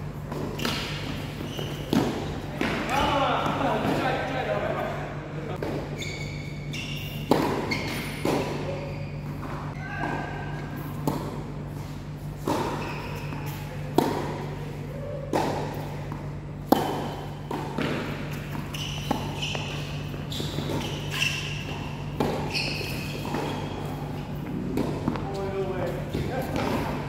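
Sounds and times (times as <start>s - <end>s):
steady low hum: 0.0s - 27.0s
tennis ball hit with rackets: 7.3s - 8.6s, 16.6s - 19.6s.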